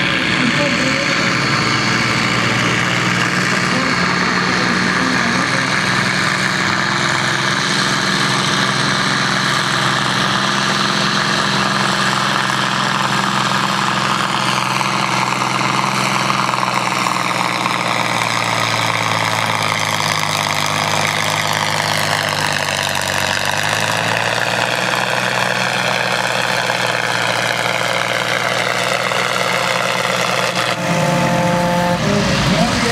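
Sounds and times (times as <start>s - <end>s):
tractor diesel engine under load: 0.0s - 32.9s.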